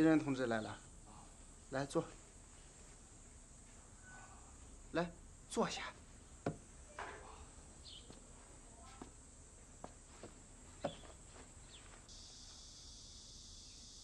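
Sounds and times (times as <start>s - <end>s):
footsteps: 8.0s - 12.6s
soft knocks: 9.8s - 11.2s.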